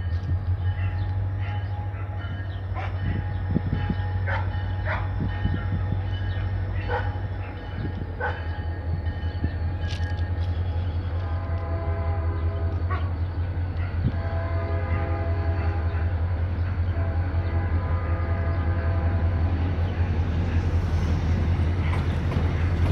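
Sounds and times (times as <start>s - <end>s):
locomotive chime horn blasts: 0.0s - 19.9s
dog barking: 4.3s - 5.1s, 6.8s - 7.6s, 8.2s - 8.4s.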